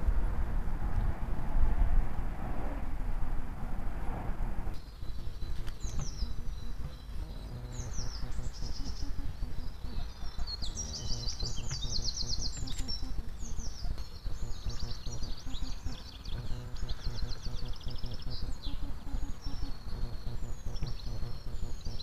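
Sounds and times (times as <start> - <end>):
low rumbling noise: 0.0 - 22.0
songbirds chirping and trilling: 4.8 - 22.0.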